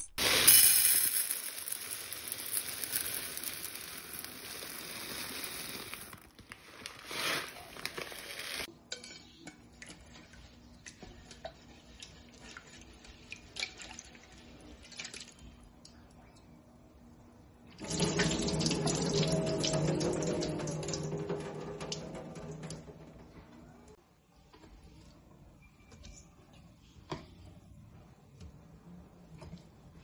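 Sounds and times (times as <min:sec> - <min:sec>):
lentils pouring into metal pot: 0:00.2 - 0:08.7, 0:17.8 - 0:21.4.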